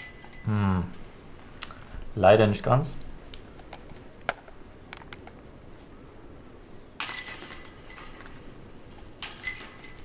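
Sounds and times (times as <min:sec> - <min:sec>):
disc jangling metal chains: 0:00.0 - 0:00.5, 0:07.0 - 0:10.0.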